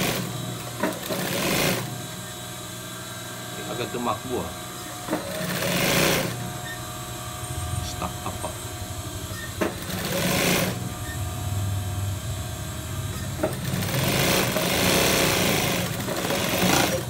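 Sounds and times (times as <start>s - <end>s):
sewing machine stitching cloth: 0.0s - 1.9s, 5.1s - 6.8s, 9.4s - 11.2s, 13.1s - 17.0s
motor hum: 0.0s - 17.0s.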